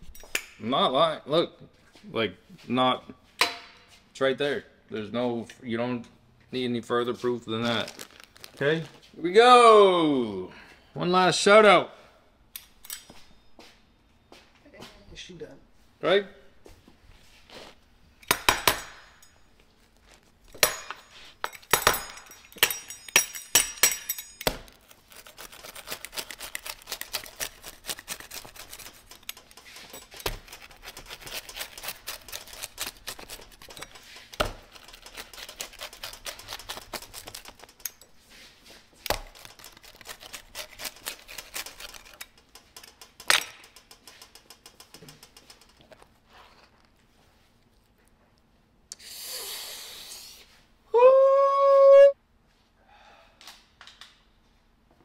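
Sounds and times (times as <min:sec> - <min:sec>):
pizza crust crunching: 0:07.6 - 0:09.0, 0:24.5 - 0:43.0, 0:44.0 - 0:48.2
metallic clinks: 0:20.5 - 0:24.8.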